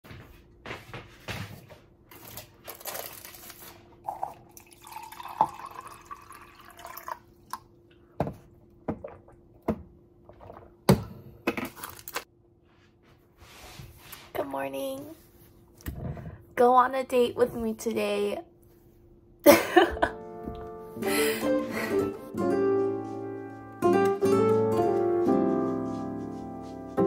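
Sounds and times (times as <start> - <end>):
liquid pouring into a glass: 4.0 - 7.6.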